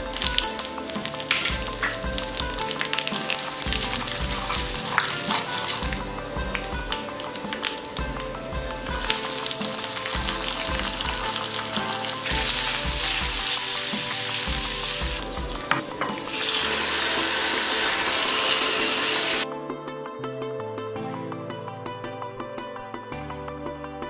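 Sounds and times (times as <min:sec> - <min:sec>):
curd pouring: 0:00.0 - 0:19.4
oil sizzling and spluttering: 0:00.0 - 0:19.4
soft background music: 0:00.0 - 0:24.0
wooden spatula stirring: 0:00.2 - 0:17.7.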